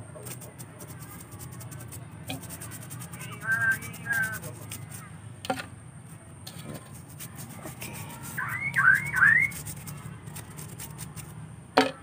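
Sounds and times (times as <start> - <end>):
toothbrush scrubbing bark: 0.1 - 5.1, 6.6 - 11.3
short high calls: 7.8 - 9.8
knocks against wood: 11.8 - 12.0.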